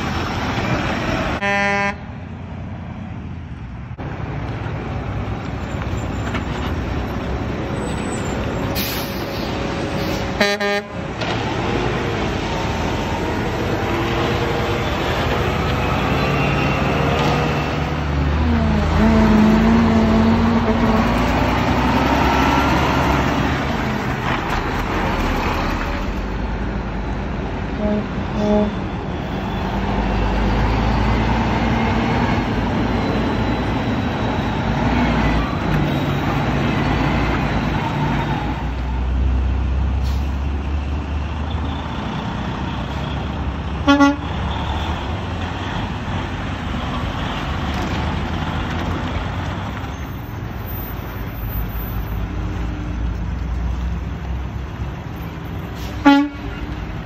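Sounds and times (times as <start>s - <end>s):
diesel trucks driving past: 0.0s - 57.0s
truck horn toots: 1.4s - 2.1s, 10.4s - 11.0s, 18.6s - 21.1s, 27.8s - 29.6s, 43.8s - 44.4s, 55.9s - 56.6s.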